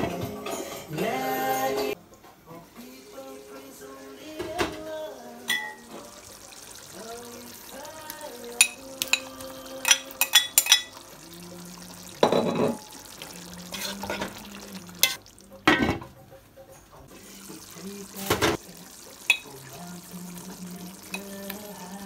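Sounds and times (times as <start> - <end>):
man singing: 0.0 - 12.2, 13.2 - 15.2, 17.1 - 22.0
stirring in a pot: 6.0 - 15.5
metal spoon scraping glass bowl: 13.7 - 14.3.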